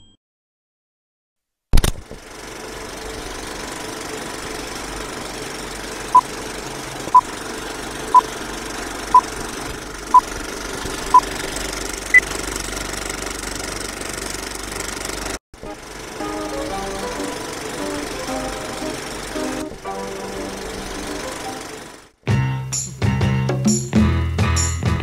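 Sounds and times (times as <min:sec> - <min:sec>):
film projector clattering: 0:02.1 - 0:16.2, 0:16.8 - 0:22.1.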